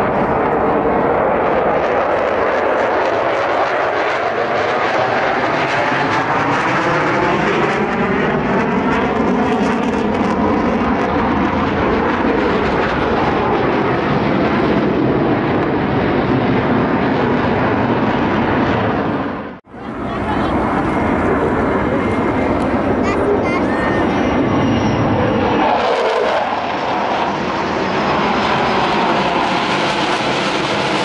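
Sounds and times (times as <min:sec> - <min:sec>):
jet engine roar: 0:00.0 - 0:31.0.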